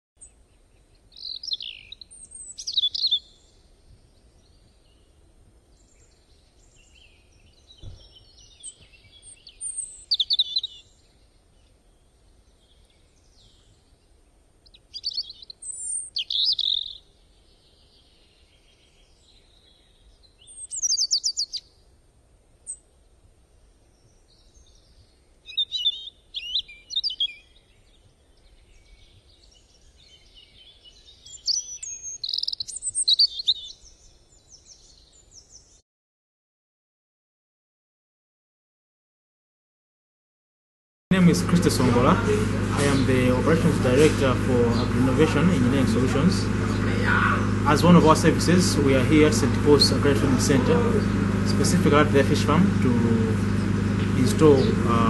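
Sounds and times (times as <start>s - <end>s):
songbird chirps and trills: 0.2s - 21.9s, 22.6s - 35.8s.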